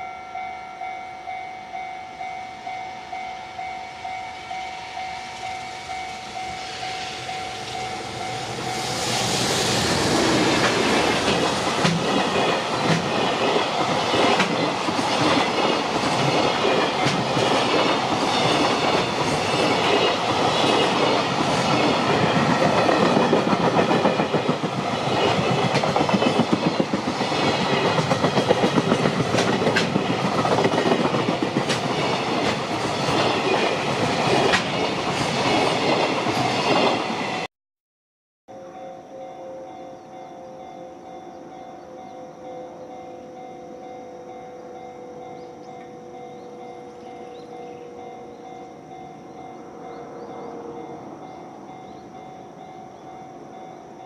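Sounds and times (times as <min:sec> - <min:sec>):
wheels clacking over rail joints: 0:10.1 - 0:37.0.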